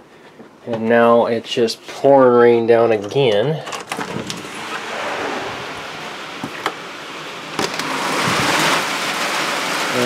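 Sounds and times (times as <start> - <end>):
heavy rain pouring: 4.1 - 10.0.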